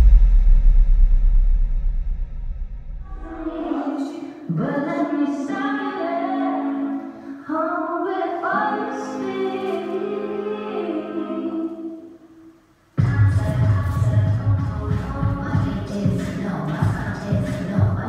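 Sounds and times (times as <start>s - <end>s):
heavy bass beat: 0.0s - 3.4s, 13.0s - 18.0s
sustained sung vocal notes: 3.1s - 12.6s.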